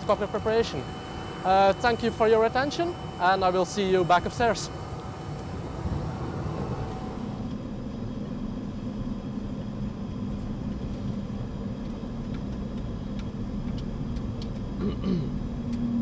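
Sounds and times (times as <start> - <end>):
high steady whine: 0.0 - 7.8
low cockpit rumble and hum: 0.0 - 16.0.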